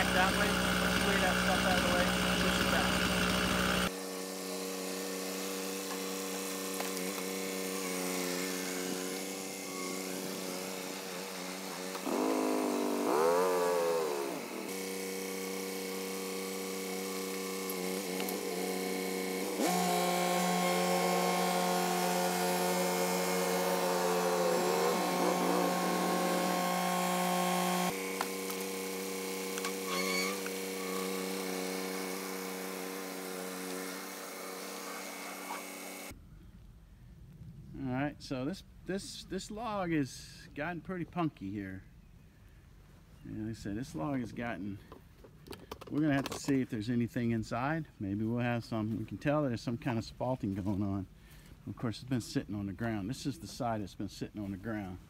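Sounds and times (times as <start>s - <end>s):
tractor diesel engine running: 0.0s - 3.9s.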